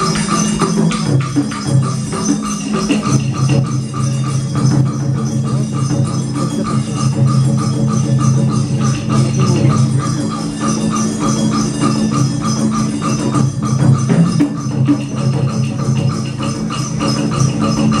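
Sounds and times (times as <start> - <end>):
quick even percussion beat: 0.0 - 18.0
orchestra sustained low notes: 8.3 - 10.8.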